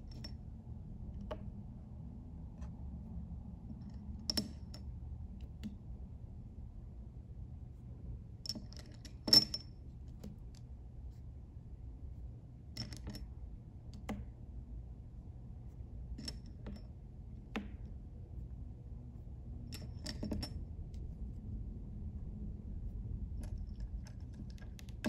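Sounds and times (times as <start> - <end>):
low room hum: 0.0 - 25.0.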